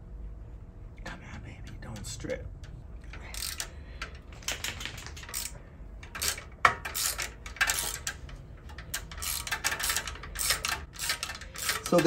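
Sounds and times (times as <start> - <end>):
wrench clinking on metal: 2.6 - 12.0.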